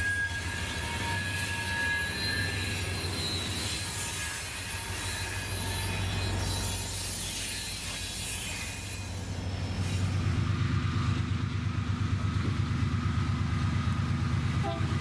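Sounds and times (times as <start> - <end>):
train wheels squealing: 0.0 - 11.2
diesel locomotive engine running: 0.0 - 15.0
freight train diesel locomotives: 0.0 - 15.0.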